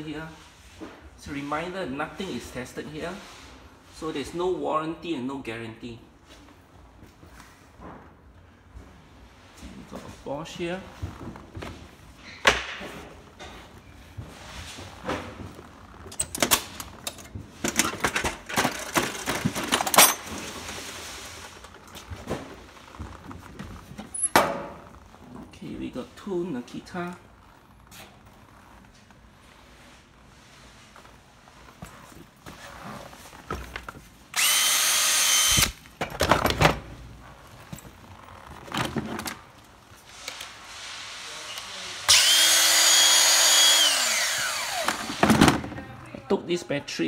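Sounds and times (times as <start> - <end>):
tools rattling and clinking: 16.1 - 20.7
drill and plastic case clattering: 16.2 - 20.7, 42.1 - 45.7
cordless drill motor whine: 34.3 - 35.8, 42.1 - 45.3.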